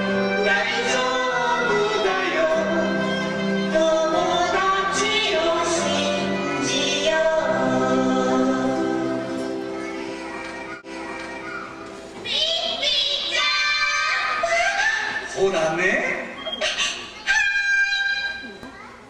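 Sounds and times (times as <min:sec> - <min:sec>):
voices singing together: 0:00.0 - 0:10.9
instrumental backing music: 0:00.0 - 0:13.0.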